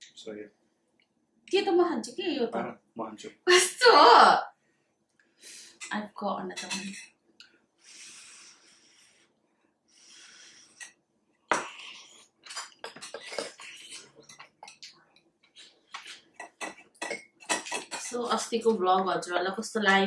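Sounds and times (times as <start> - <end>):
slurping noodles and soup: 11.6 - 14.3.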